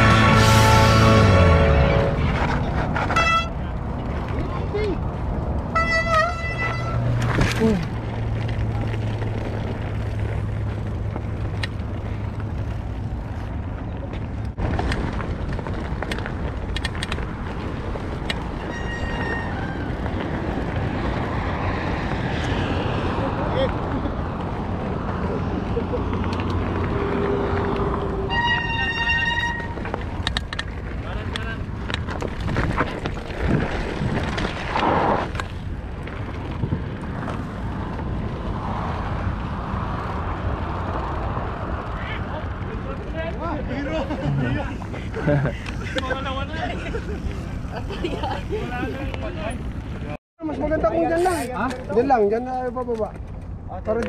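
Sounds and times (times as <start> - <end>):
wind and tyre noise: 0.0 - 54.0
bike clicks: 2.4 - 22.6, 23.6 - 50.2, 51.1 - 54.0
short high squeal: 18.6 - 19.9.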